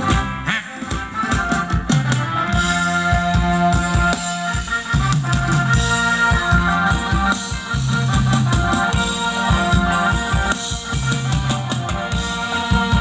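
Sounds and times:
live band dance music: 0.0 - 13.0.

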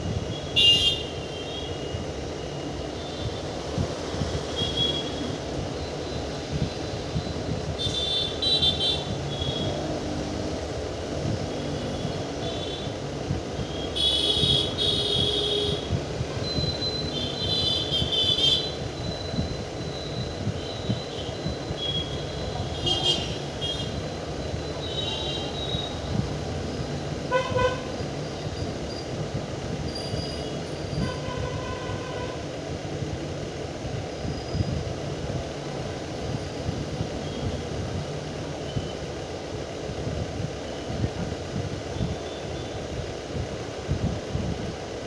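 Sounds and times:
train low rumble: 9.0 - 14.0, 18.1 - 45.0
horn tooting: 27.3 - 28.0.

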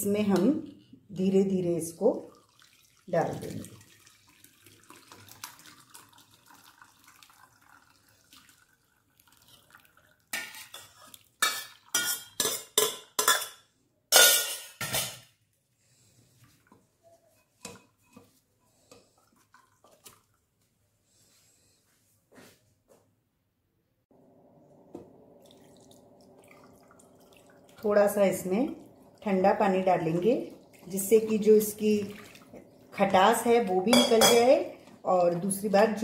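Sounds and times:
milk trickling into strainer: 2.2 - 12.1, 16.0 - 20.6, 25.4 - 33.5
metal spoon scraping steel bowl: 10.4 - 13.6.

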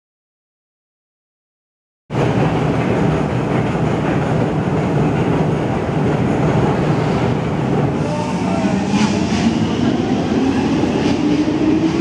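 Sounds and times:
echoing station rumble: 2.1 - 12.0.

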